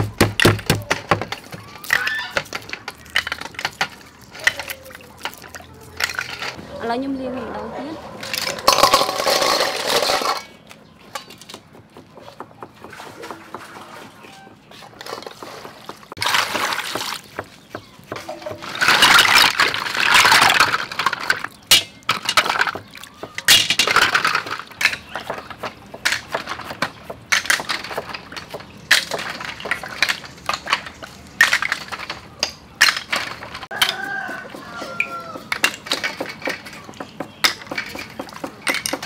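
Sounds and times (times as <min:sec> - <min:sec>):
water pouring and sloshing: 0:01.0 - 0:06.6, 0:12.7 - 0:17.5, 0:18.5 - 0:26.7, 0:27.3 - 0:33.7.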